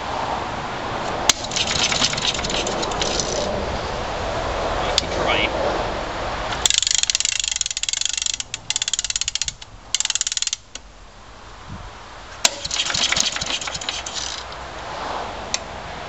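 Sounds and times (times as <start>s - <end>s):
spring starter rapid clicking: 1.3s - 3.5s, 6.6s - 10.8s, 12.4s - 14.6s.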